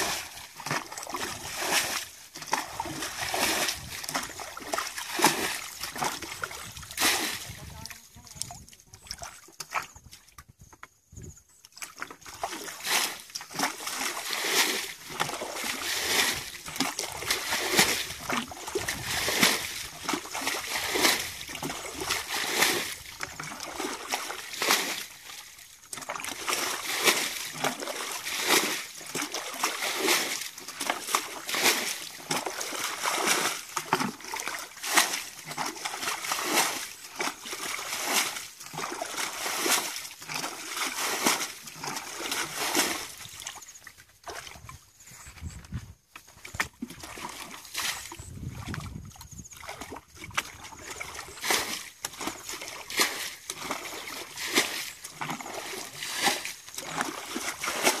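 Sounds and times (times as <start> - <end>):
bucket scooping and splashing water: 0.0 - 58.0.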